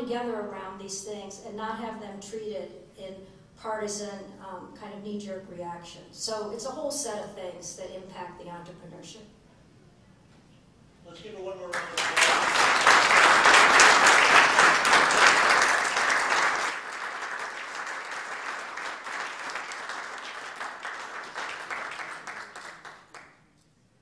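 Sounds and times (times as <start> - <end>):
audience applauding: 11.7 - 23.4.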